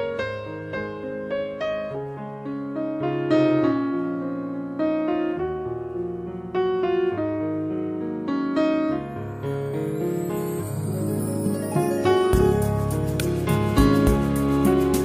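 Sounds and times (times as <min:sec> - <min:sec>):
slow piano melody: 0:00.0 - 0:15.0.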